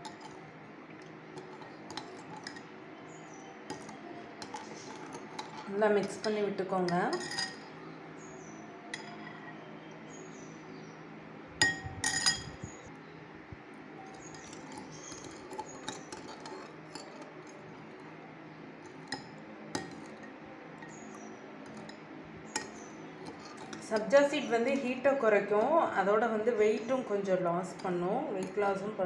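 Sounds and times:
spoon stirring liquid: 0:00.0 - 0:07.8, 0:08.8 - 0:09.5, 0:14.0 - 0:29.0
spoon clinking against glass: 0:01.4 - 0:02.7, 0:03.7 - 0:07.7, 0:08.9 - 0:09.4, 0:11.6 - 0:12.7, 0:14.0 - 0:18.1, 0:18.8 - 0:24.2.

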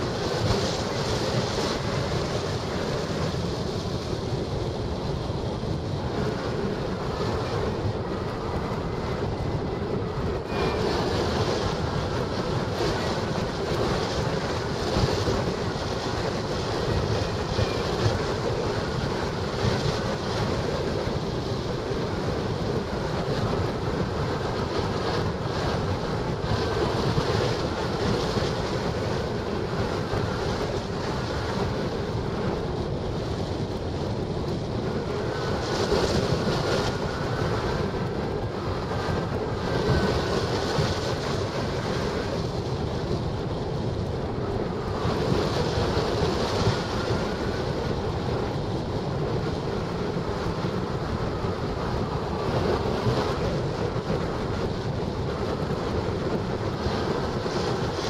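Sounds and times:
airflow over microphone: 0:00.0 - 0:58.0
faint high whistle: 0:10.5 - 0:11.0.

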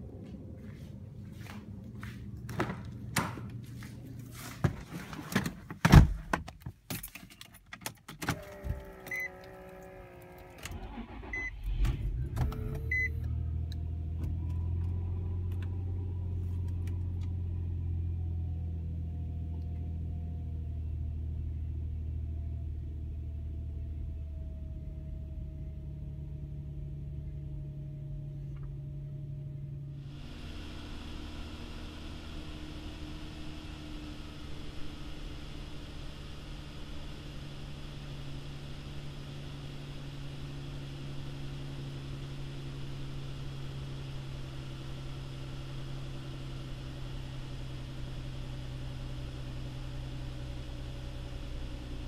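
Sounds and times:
engine cranking and starting: 0:08.3 - 0:13.1
engine fast idle: 0:10.7 - 0:12.4
beeps: 0:11.3 - 0:11.6.

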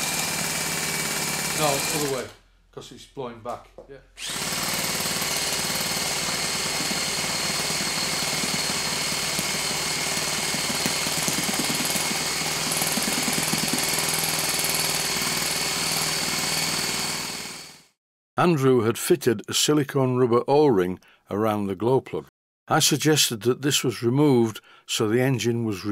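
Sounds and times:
electric starter motor whine: 0:04.2 - 0:17.9.

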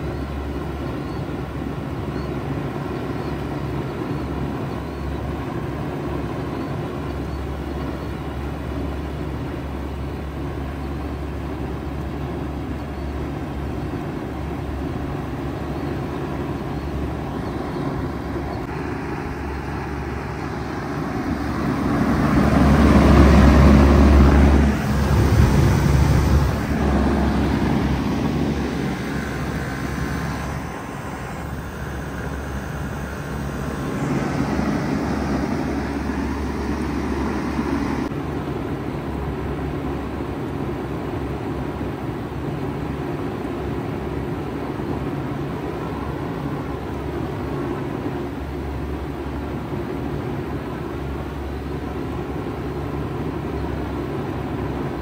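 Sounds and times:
fan rushing: 0:00.0 - 0:55.0
compressor humming: 0:14.7 - 0:38.1
loud rushing sound: 0:18.6 - 0:38.1.

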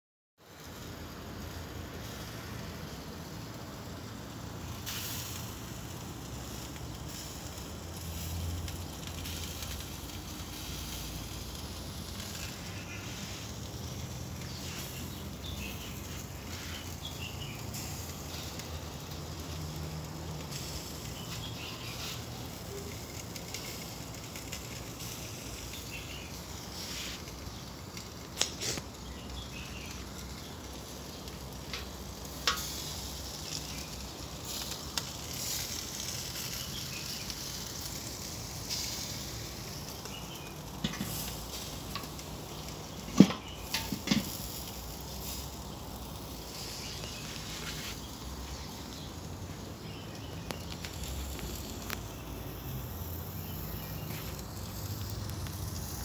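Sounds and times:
chicken sizzling on grill: 0:00.4 - 0:56.0.

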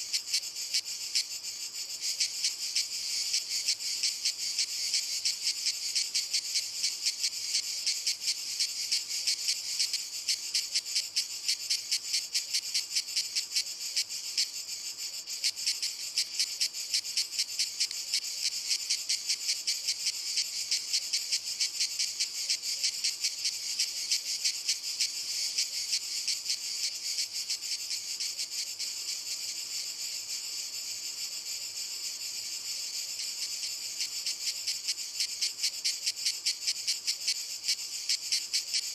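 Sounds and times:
cicadas buzzing in chorus: 0:00.0 - 0:38.9.

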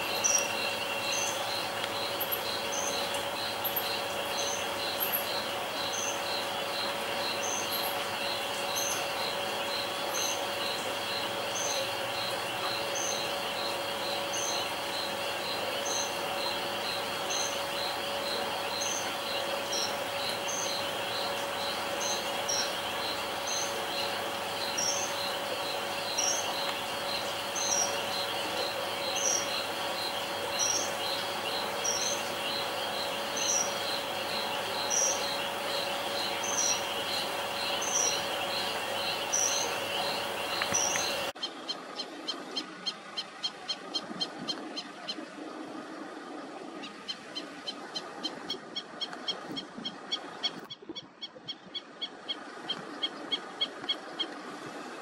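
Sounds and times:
crickets trilling: 0:00.0 - 0:42.0
faint steady hum: 0:00.0 - 0:55.0
insect call: 0:00.0 - 0:55.0.

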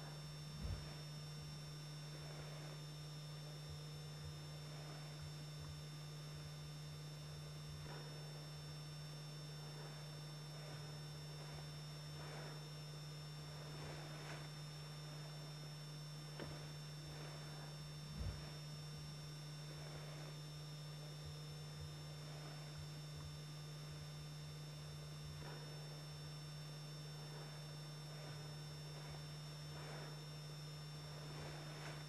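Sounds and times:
faint hiss: 0:00.0 - 0:05.7, 0:06.3 - 0:21.1, 0:21.7 - 0:32.0
low electrical hum: 0:00.0 - 0:32.0
soft low thump: 0:00.5 - 0:01.2, 0:18.1 - 0:18.8.

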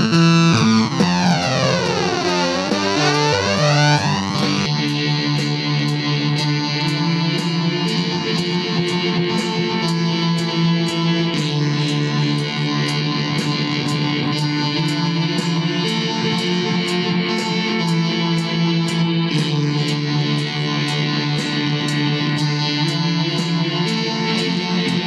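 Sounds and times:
sustained low notes: 0:00.0 - 0:07.8
electric guitar playing: 0:00.0 - 0:25.0
high ticking beat: 0:00.0 - 0:25.0.

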